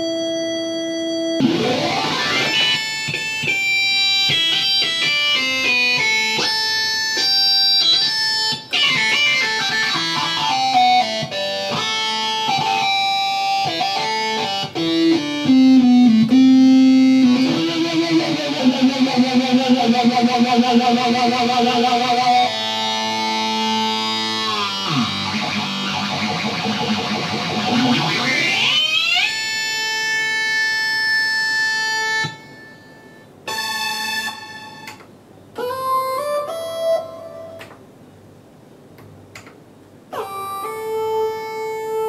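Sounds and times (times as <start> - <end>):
synthesizer chords with pitch glides: 1.3 - 6.9, 8.0 - 32.6.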